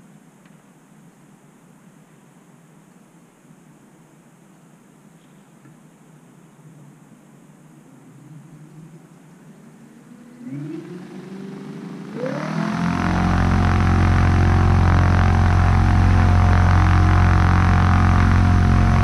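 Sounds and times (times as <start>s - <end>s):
electric motor and propeller whine: 9.8s - 19.0s.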